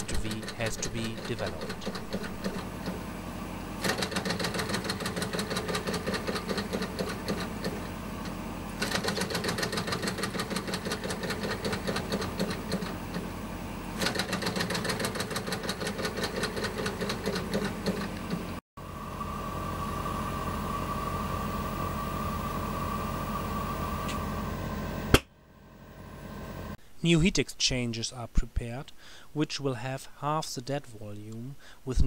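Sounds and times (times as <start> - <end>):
engine drive clattering: 0.0 - 3.1, 3.8 - 18.6
steady hum with high tone: 0.0 - 26.8.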